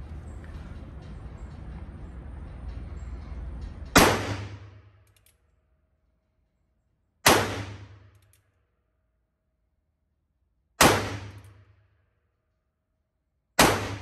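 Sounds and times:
revolver gunshots with ringing: 0:04.0 - 0:04.7, 0:07.2 - 0:08.1, 0:10.8 - 0:11.5, 0:13.6 - 0:14.0.

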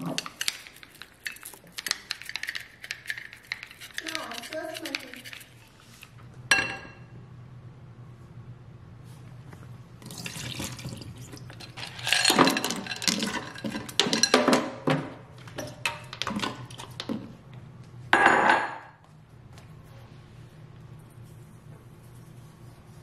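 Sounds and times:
water pouring into a sink: 0:10.0 - 0:11.4.

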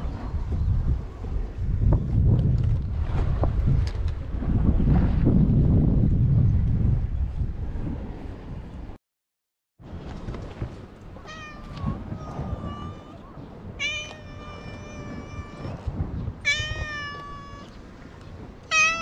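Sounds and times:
cat meowing: 0:11.2 - 0:17.8, 0:18.7 - 0:19.0.

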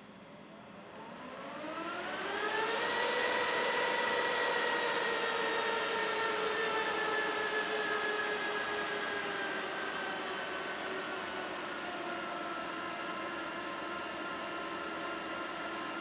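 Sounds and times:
server cooling fans whining: 0:00.0 - 0:16.0.

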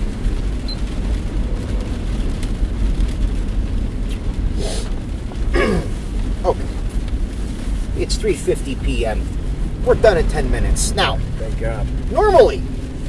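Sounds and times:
car cabin road rumble: 0:00.0 - 0:13.0.

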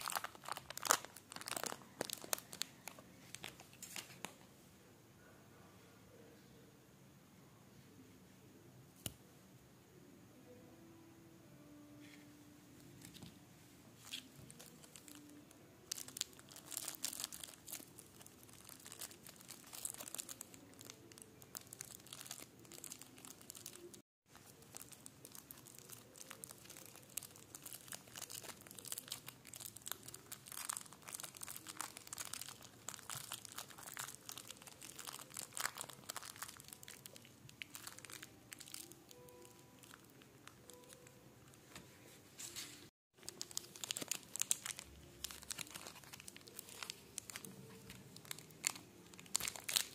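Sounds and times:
candy bar breaking: 0:00.0 - 0:02.8, 0:14.5 - 0:40.1, 0:43.2 - 0:49.9
plastic wrapper crinkling: 0:00.0 - 0:04.4, 0:14.0 - 0:41.2, 0:42.5 - 0:49.9.

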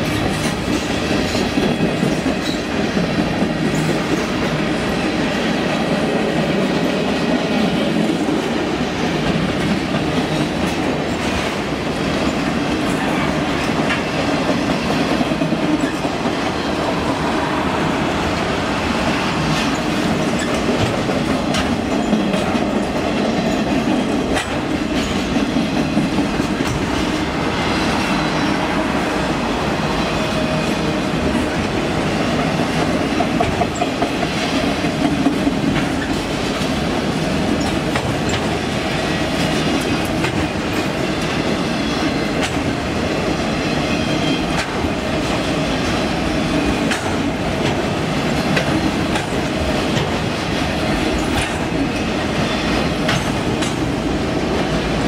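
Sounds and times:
train wheels rolling on track: 0:00.0 - 0:55.0
sharp clacks: 0:46.8 - 0:47.8, 0:51.2 - 0:51.8, 0:53.0 - 0:53.9.

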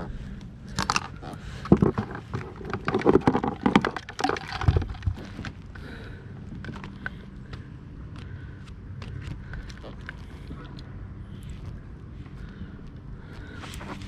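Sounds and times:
handling clicks and rattles in kayak: 0:00.8 - 0:05.6.

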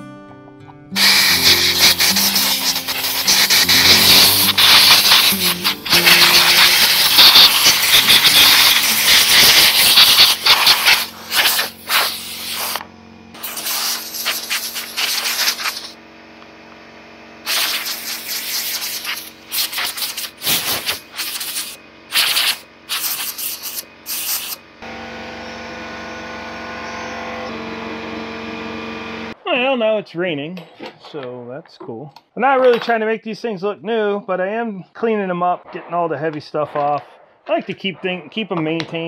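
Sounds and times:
compressed air blow gun hissing: 0:01.0 - 0:12.8, 0:13.4 - 0:16.0, 0:17.4 - 0:24.6.

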